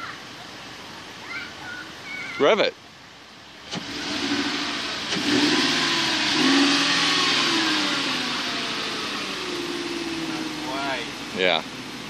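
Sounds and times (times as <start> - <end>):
car engine revving: 3.6 - 12.0.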